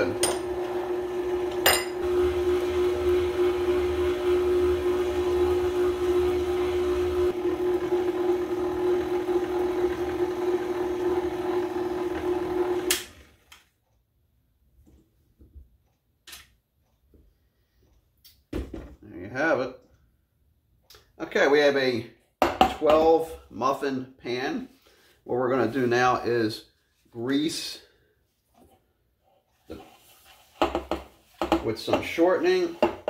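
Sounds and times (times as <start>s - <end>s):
stand mixer running: 0.0s - 13.5s.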